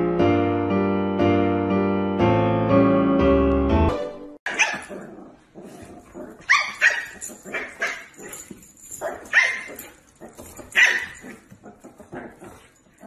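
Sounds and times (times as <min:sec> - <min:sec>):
puppy barking and yapping: 0:04.5 - 0:12.7.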